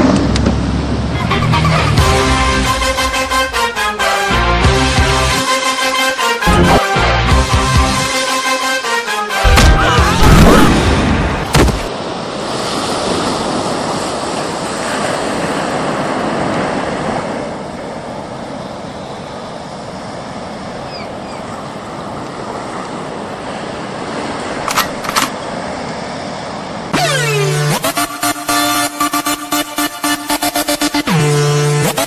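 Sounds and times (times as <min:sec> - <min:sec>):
loud thump: 0:09.5 - 0:10.8, 0:11.5 - 0:11.9
surf washing on a beach: 0:10.7 - 0:24.7.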